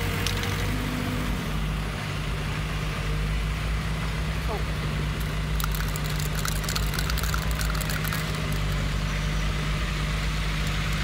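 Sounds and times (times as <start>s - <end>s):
sharp clicks and rattles: 5.2s - 9.0s.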